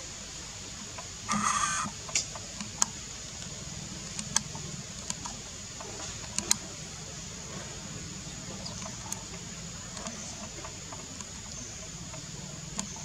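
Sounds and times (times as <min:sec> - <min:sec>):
steady hiss: 0:00.0 - 0:13.0
high-pitched animal squeal: 0:01.3 - 0:01.9.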